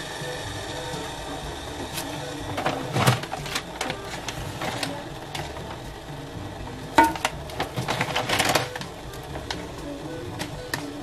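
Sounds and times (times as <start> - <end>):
dry noodles crackling: 0.6 - 11.0
metal pot knock and ring: 7.0 - 7.3.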